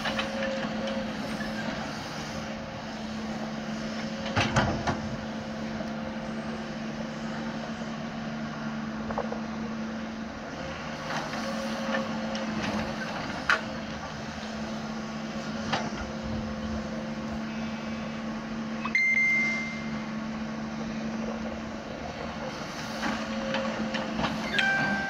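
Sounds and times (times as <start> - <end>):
excavator diesel engine humming: 0.0 - 25.0
high-pitched tone: 18.8 - 20.2, 24.5 - 25.0.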